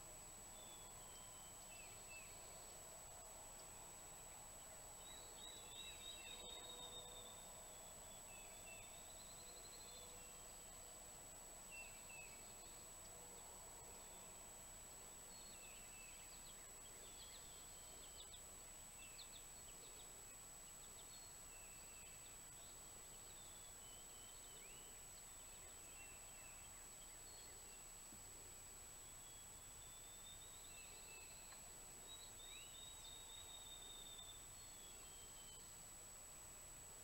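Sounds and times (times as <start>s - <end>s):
songbird chirps and whistles: 0.5s - 2.7s, 5.0s - 10.3s, 20.8s - 28.0s, 29.0s - 35.8s.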